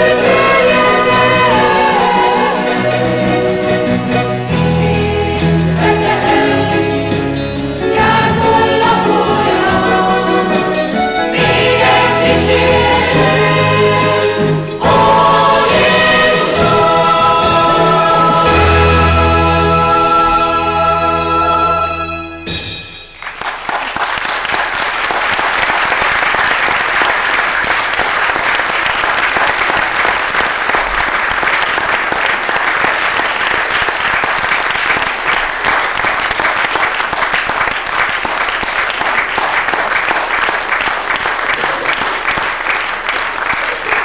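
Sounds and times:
audience applauding: 23.2s - 44.0s.

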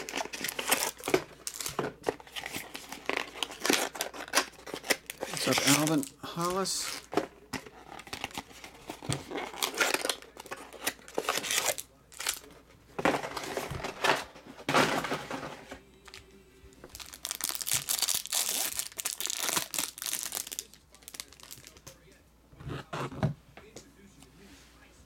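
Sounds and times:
plastic wrap crinkling and tearing: 0.0s - 12.5s, 16.8s - 21.9s.

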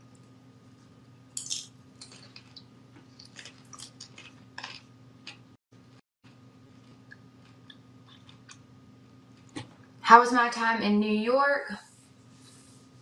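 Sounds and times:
low electrical hum: 0.0s - 13.0s
person chewing crunchy snack: 1.4s - 5.5s, 6.3s - 8.6s.

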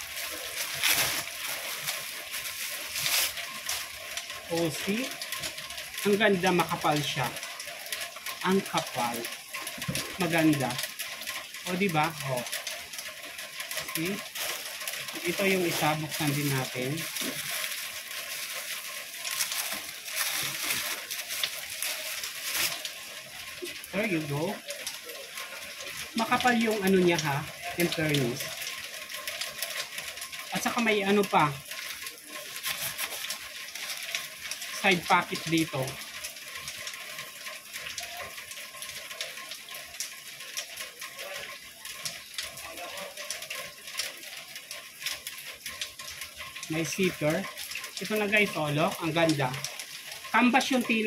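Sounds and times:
canvas bag rustling: 0.0s - 3.7s, 15.4s - 23.0s
plastic packaging rustling: 0.0s - 51.0s.

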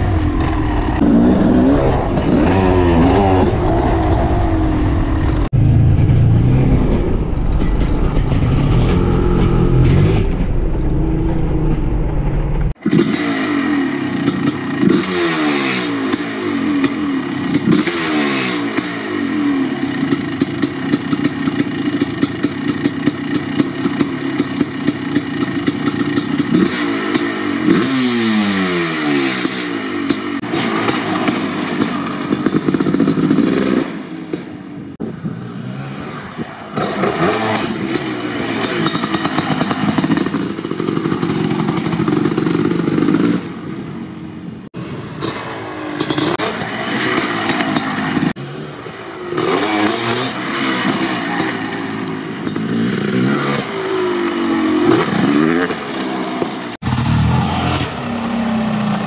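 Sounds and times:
dirt bike engine revving: 0.0s - 44.2s, 44.8s - 59.0s.

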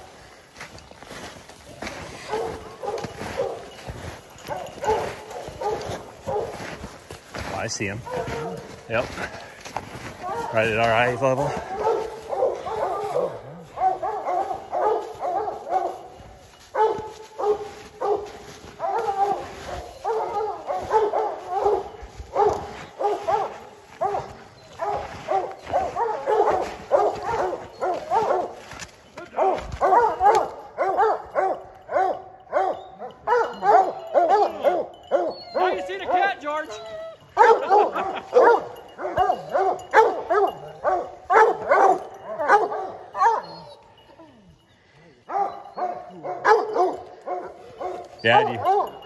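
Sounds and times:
hounds barking and baying: 0.0s - 49.0s.

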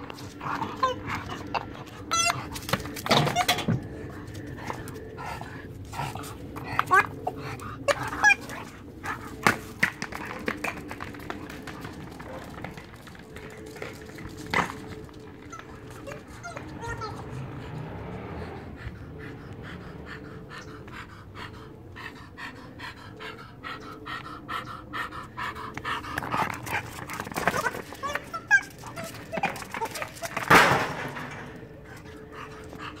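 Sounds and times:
dog panting: 0.0s - 33.0s.

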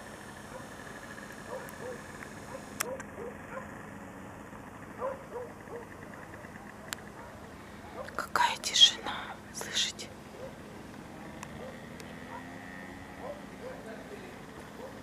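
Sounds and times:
distant animal calls: 4.8s - 8.2s, 11.4s - 13.9s.

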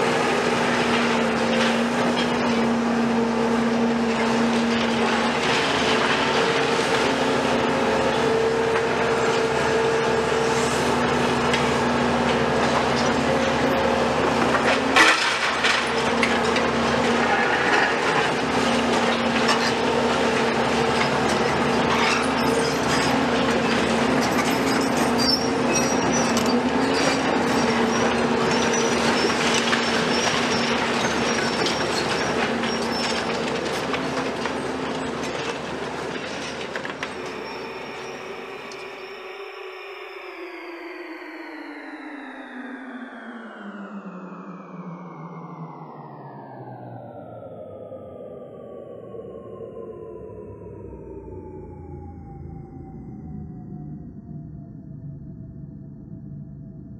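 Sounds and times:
excavators running: 0.0s - 40.4s
clattering steel and rubble: 0.1s - 9.6s, 11.4s - 39.0s.

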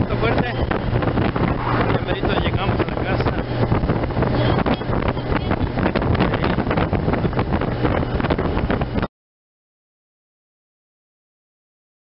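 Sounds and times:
wind buffeting microphone: 0.0s - 9.1s.

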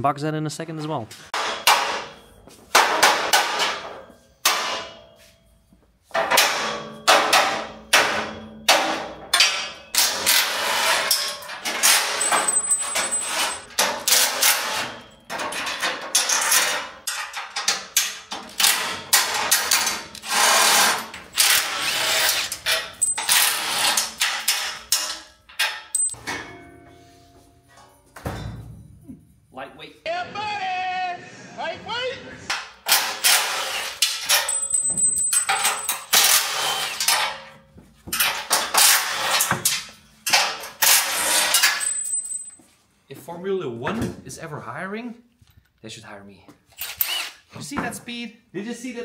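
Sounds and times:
metal crate knocks and clanks: 28.1s - 29.0s.

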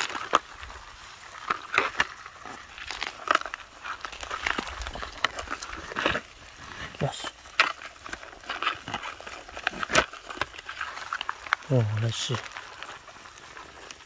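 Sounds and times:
ground litter crackling and rustling: 0.0s - 14.0s.

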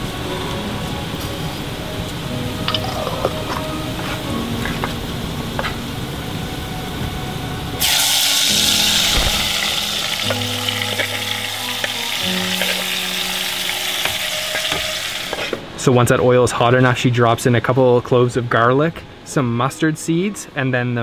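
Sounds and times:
food sizzling in hot oil: 0.0s - 6.2s, 7.8s - 15.6s.

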